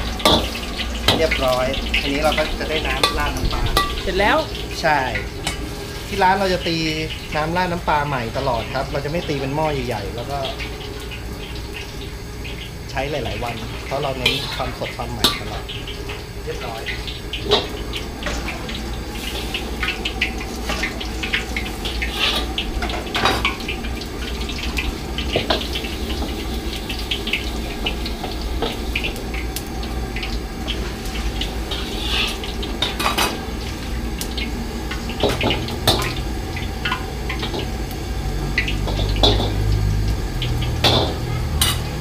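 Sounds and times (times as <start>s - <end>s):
gas burner rumble: 0.0s - 42.0s
ladle clanking against wok: 2.2s - 4.1s, 38.6s - 39.8s, 40.5s - 42.0s.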